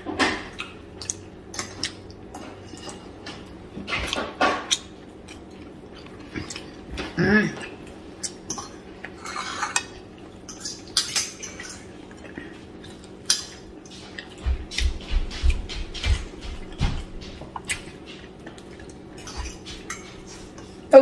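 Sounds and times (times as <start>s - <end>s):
cutlery clinking on plates: 8.3s - 14.4s, 15.4s - 20.8s.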